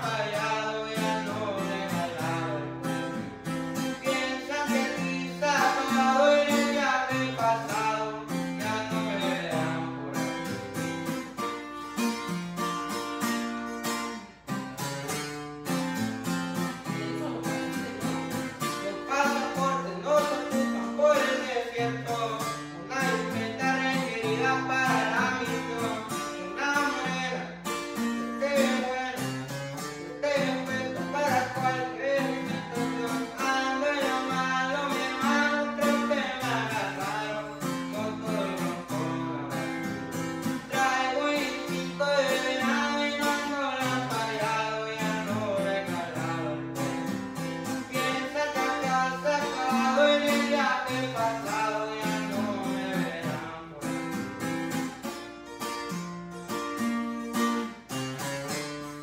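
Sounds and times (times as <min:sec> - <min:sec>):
plucked guitars: 0:00.0 - 0:59.0
bass line: 0:14.5 - 0:27.6.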